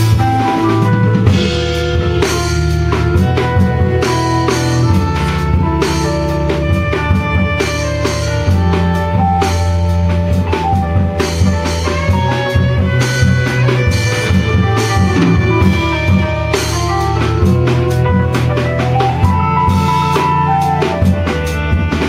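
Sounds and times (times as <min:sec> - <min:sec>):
drums playing a busy beat: 0:00.0 - 0:22.0
saxophone melody: 0:00.0 - 0:22.0.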